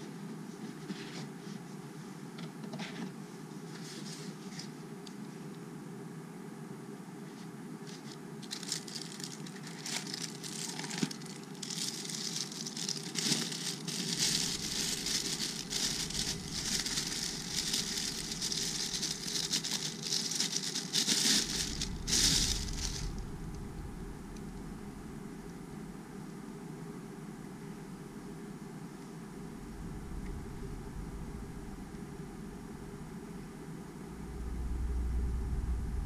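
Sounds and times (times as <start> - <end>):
plastic bag crinkling: 7.9 - 23.4.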